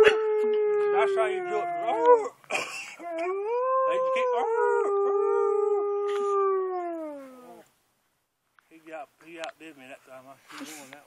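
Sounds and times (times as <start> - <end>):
dog howling: 0.0 - 2.3, 3.0 - 7.6
man howling: 0.0 - 2.4, 3.0 - 7.6.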